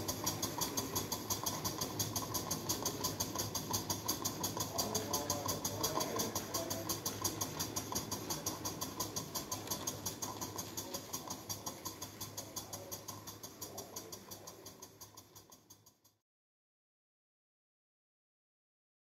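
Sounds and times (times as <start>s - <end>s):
steam engine exhaust puffs: 0.0s - 16.0s
steady low hum: 0.0s - 16.1s.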